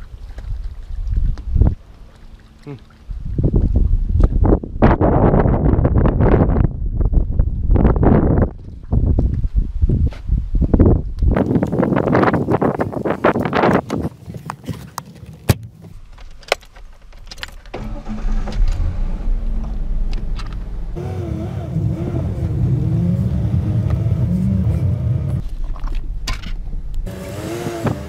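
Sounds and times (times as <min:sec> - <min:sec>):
pickup truck engine: 0:17.7 - 0:28.0.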